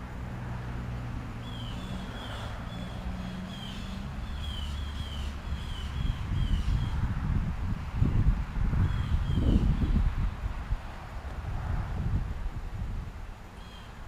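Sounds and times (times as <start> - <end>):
motor vehicle hum: 0.0 - 14.0
bird chirping: 1.4 - 7.0, 13.6 - 14.0.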